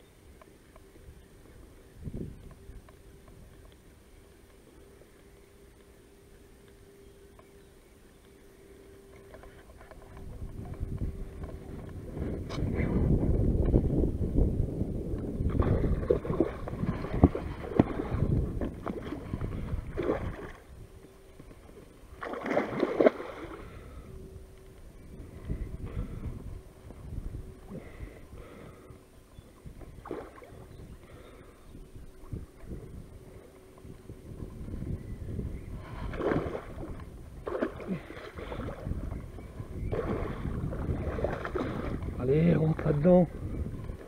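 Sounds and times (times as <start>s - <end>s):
wind rumble on microphone: 0.7s - 4.3s, 9.0s - 44.0s
fish thrashing and splashing: 15.6s - 20.6s, 22.1s - 23.8s, 36.0s - 38.9s, 39.9s - 42.1s
fish splashing at the surface: 22.2s - 23.8s, 39.9s - 42.0s.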